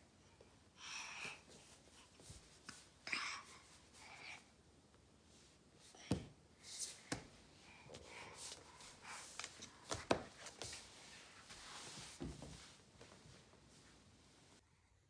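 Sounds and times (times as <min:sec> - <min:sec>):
clothing rustling: 0:06.7 - 0:14.6.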